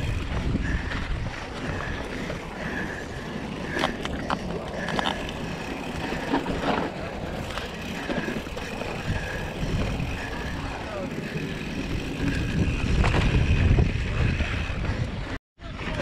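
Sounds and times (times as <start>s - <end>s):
bike knocking and rattling: 0.0s - 16.0s
tyre and wind rumble: 0.0s - 16.0s.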